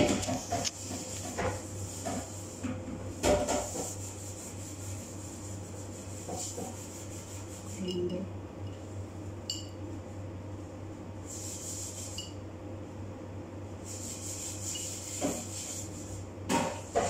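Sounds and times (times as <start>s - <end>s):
hissy scraping on glass jar: 11.3s - 12.4s, 13.9s - 16.1s.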